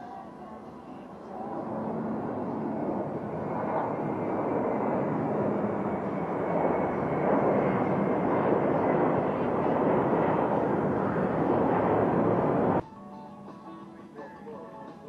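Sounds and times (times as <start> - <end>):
jet airliner climbing: 1.2 - 12.8.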